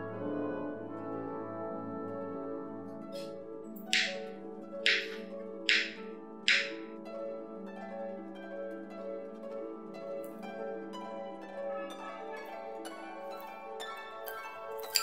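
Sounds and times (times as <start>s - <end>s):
plucked harp-like melody: 3.1s - 15.0s.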